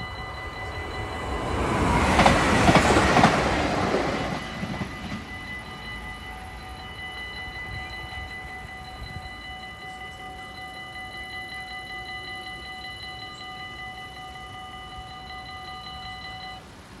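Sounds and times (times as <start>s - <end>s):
level crossing bell ringing: 0.0s - 16.8s.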